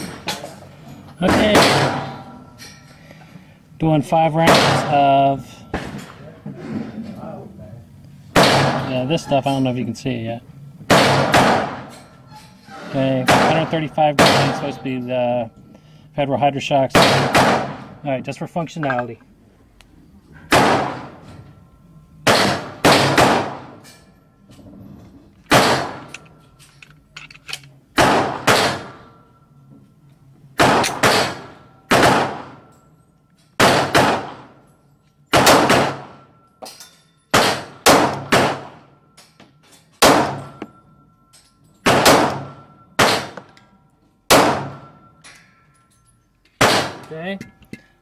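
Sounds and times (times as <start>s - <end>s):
pistol shots with echo: 1.3s - 2.4s, 4.4s - 5.9s, 8.4s - 9.1s, 10.9s - 12.0s, 13.2s - 14.8s, 16.9s - 18.0s, 20.5s - 21.2s, 22.2s - 23.8s, 25.5s - 26.3s, 28.0s - 29.2s, 30.6s - 32.7s, 33.6s - 34.6s, 35.3s - 36.4s, 37.3s - 39.0s, 40.0s - 40.6s, 41.8s - 43.6s, 44.3s - 45.2s, 46.6s - 47.1s.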